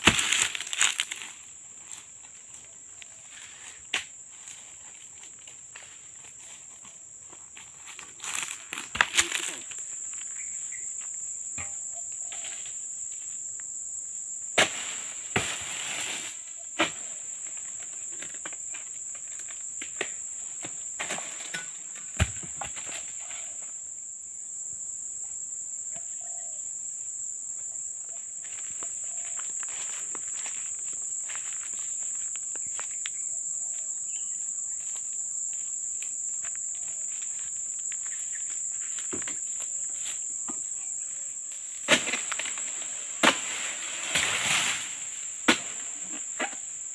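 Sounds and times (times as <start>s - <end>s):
sickle chopping palm fronds: 0.0s - 1.3s, 8.4s - 9.7s, 14.6s - 17.2s, 41.8s - 46.7s
fronds rustling: 0.0s - 6.4s
high-pitched insect drone: 23.1s - 42.9s.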